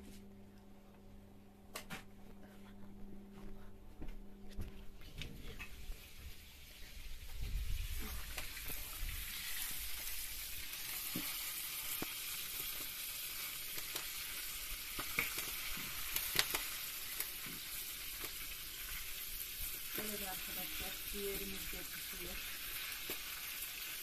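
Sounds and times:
meat sizzling in oil: 6.0 - 24.0.

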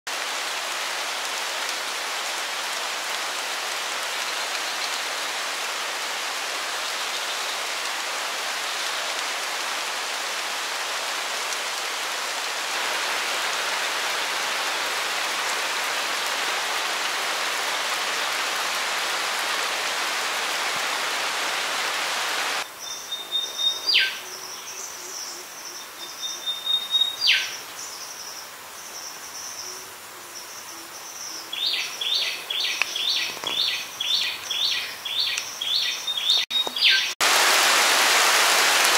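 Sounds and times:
heavy rain on foliage: 0.0 - 38.9
river flowing: 0.1 - 22.7, 31.4 - 38.9
bird whistling call: 22.9 - 24.2.

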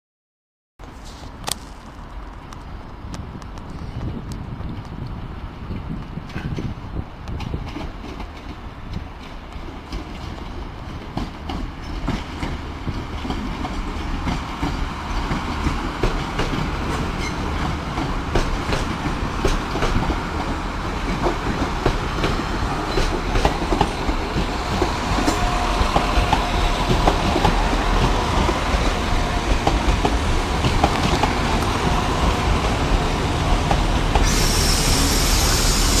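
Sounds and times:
train wheels clicking over rail joints: 5.7 - 36.0
high hiss: 33.9 - 36.0.

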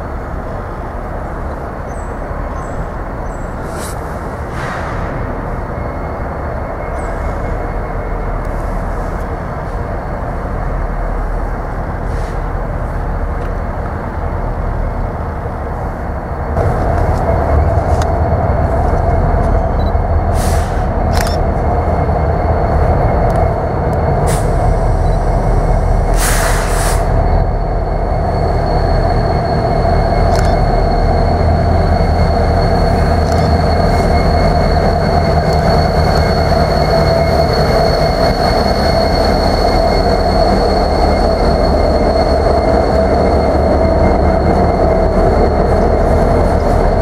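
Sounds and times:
diesel locomotives running: 0.0 - 47.0
short bursts of hiss: 26.2 - 27.1.

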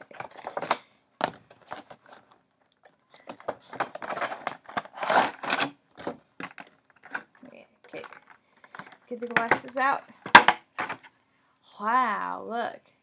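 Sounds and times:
plastic packaging crinkling: 0.0 - 9.6
cardboard box opening: 3.2 - 7.3.

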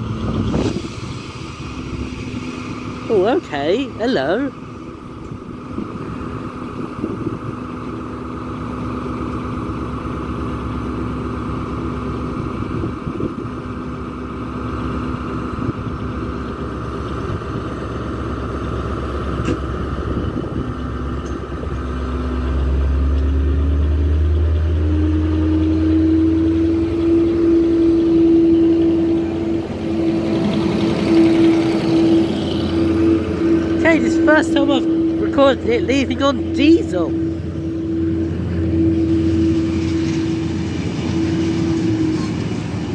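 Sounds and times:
locomotive diesel engine revving: 0.0 - 42.9.

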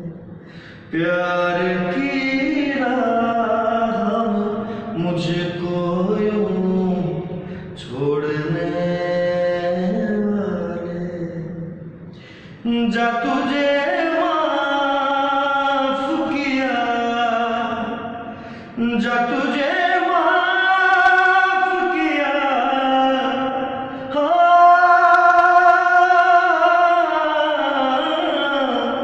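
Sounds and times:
short breaths: 0.3 - 0.9, 7.4 - 7.8, 12.1 - 12.6, 18.3 - 18.8.

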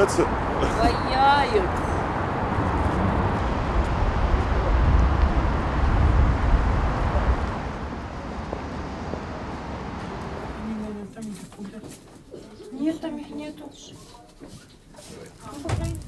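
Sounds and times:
road traffic rumble: 0.0 - 11.8.

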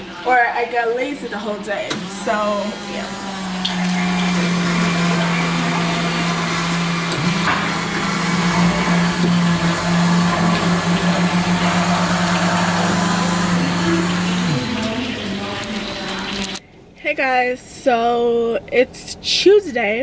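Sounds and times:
coffee machine motor hum: 1.9 - 16.6.

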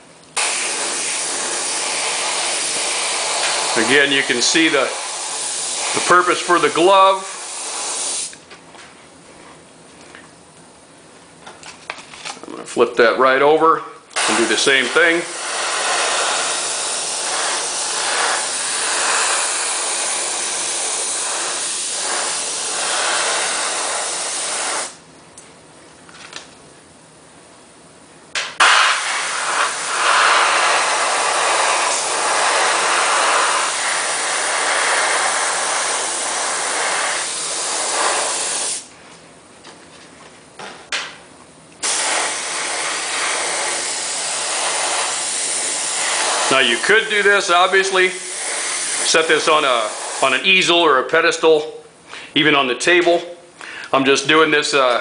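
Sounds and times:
airbrush spraying hiss: 0.4 - 8.4, 14.2 - 25.0, 28.6 - 38.9, 41.8 - 50.5.

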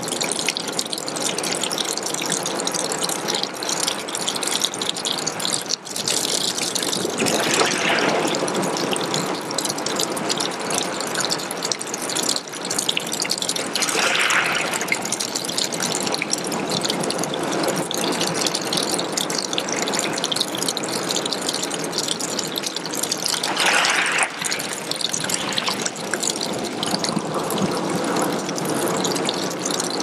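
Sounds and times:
water trickling onto pebbles: 0.0 - 30.0
water rushing: 6.5 - 9.7, 13.4 - 17.2, 22.2 - 30.0.

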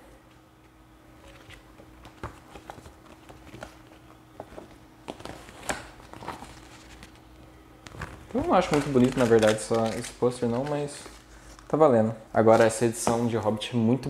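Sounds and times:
plastic wrap and paper rustling: 1.2 - 13.2.

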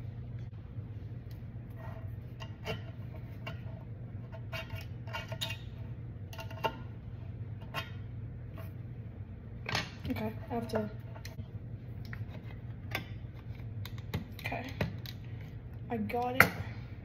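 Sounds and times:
steady low hum: 0.0 - 17.0
knife scraping metal can lid: 1.8 - 6.8.

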